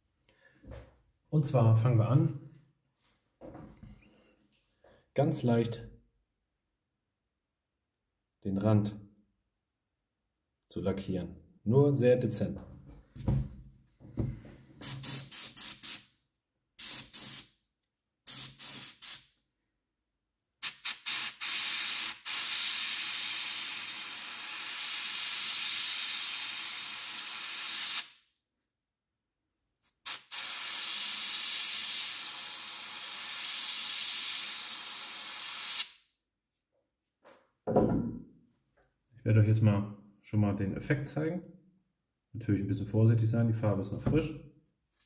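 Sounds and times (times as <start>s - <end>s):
airbrush spraying hiss: 14.8s - 16.1s, 16.8s - 17.5s, 18.3s - 19.3s, 20.6s - 28.1s, 29.9s - 35.9s.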